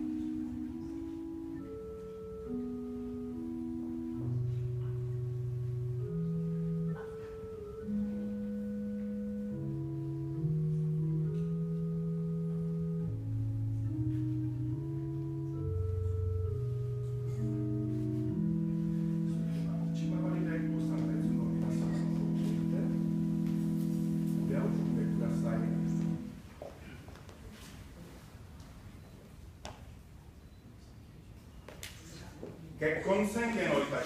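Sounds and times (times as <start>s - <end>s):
slow instrumental music: 0.0s - 26.5s.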